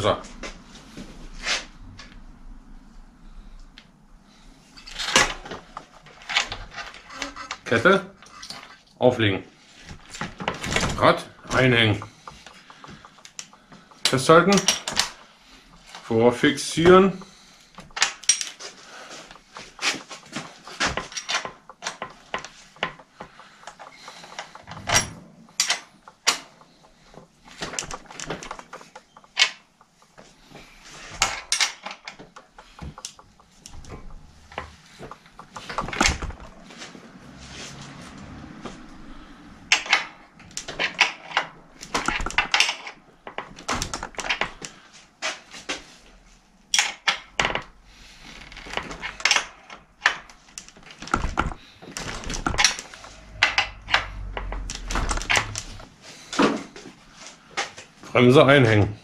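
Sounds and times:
metal clinks of tools and bike parts: 0:10.4 - 0:36.6, 0:39.6 - 0:44.8.

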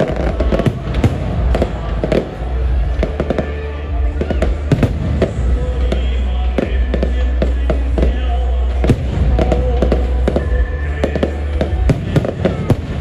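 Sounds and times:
firework bangs: 0:00.0 - 0:13.0.

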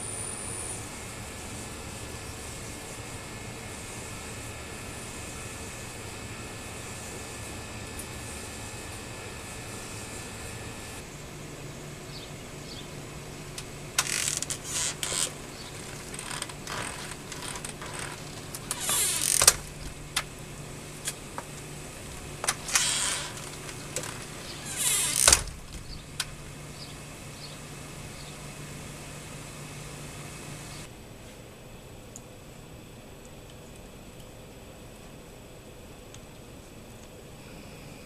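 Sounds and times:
steady low hum: 0:00.0 - 0:38.0
robot mechanical clattering: 0:14.0 - 0:20.3, 0:22.4 - 0:26.4.

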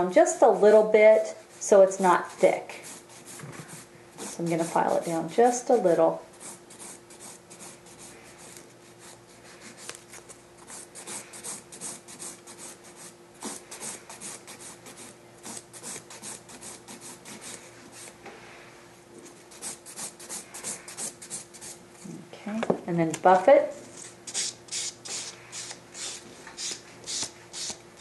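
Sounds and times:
hand file rasping on acrylic nail: 0:02.4 - 0:10.0, 0:10.6 - 0:18.1, 0:19.5 - 0:21.8, 0:24.0 - 0:27.8.

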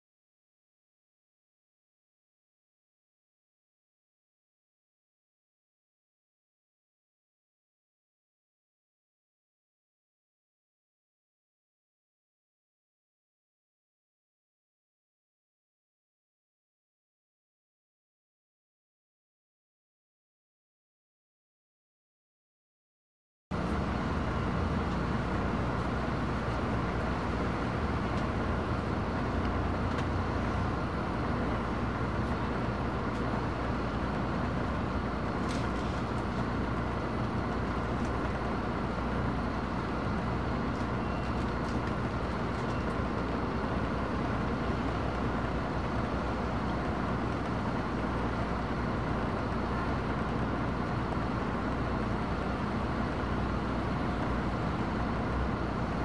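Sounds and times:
bus engine drone: 0:23.5 - 0:56.0
road noise: 0:23.5 - 0:56.0.

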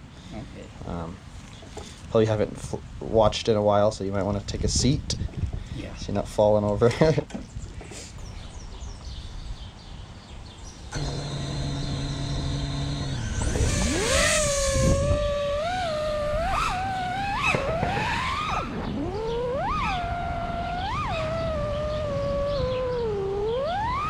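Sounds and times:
drone motors whining: 0:10.9 - 0:24.0.

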